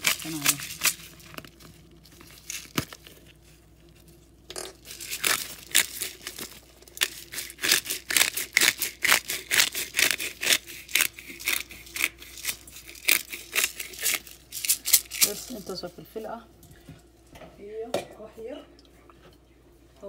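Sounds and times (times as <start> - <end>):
pepper mill grinding: 0.0 - 15.8.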